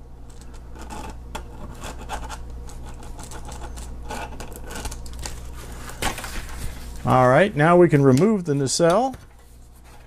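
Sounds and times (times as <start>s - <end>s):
pencil scratching on foam: 0.8s - 4.4s.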